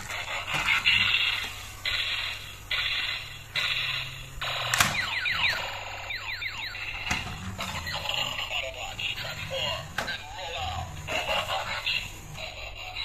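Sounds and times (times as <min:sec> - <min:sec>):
toy gear mechanism clicking and whirring: 0:00.0 - 0:13.0
electronic toy sound effects: 0:00.1 - 0:13.0.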